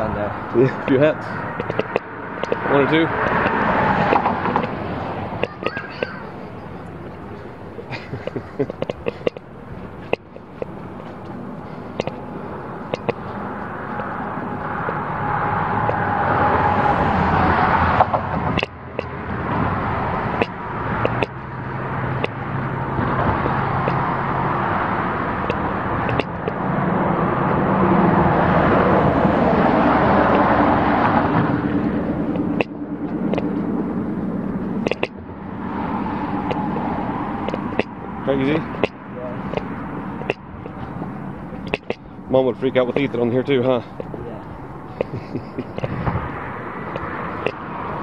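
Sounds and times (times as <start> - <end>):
highway traffic passing: 0.0 - 48.0
sharp clicks: 1.6 - 4.8, 7.9 - 12.3, 12.9 - 13.2, 20.3 - 21.4, 25.4 - 26.6, 32.3 - 33.5, 34.8 - 35.2, 41.5 - 42.1.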